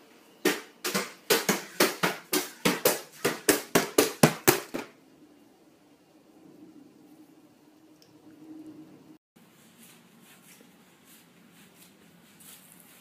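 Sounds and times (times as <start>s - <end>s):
hands slapping plastic tray: 0.4s - 4.9s.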